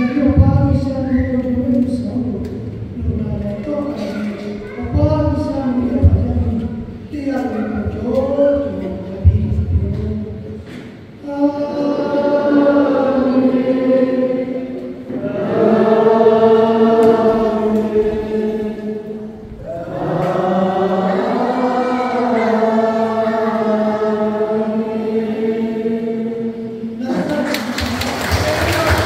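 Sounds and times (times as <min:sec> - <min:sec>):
group of voices singing: 0:07.4 - 0:29.0.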